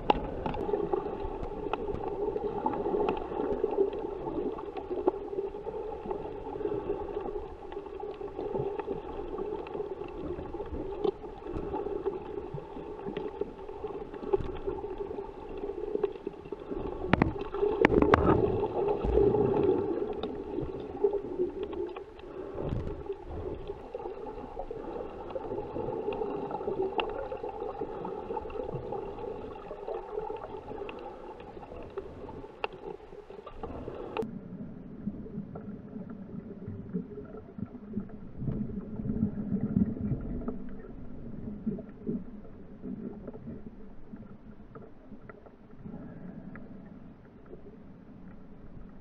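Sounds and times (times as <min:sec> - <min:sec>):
muffled underwater rumbling: 0:00.0 - 0:49.0.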